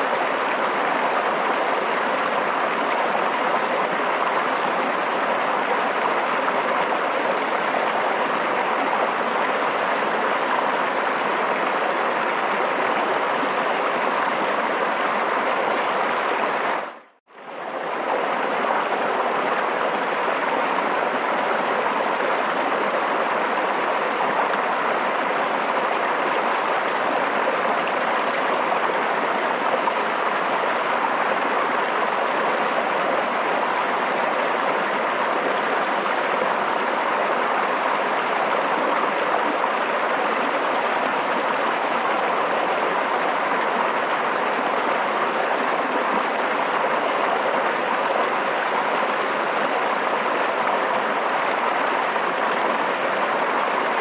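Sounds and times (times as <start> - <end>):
river water rushing: 0.0 - 54.0.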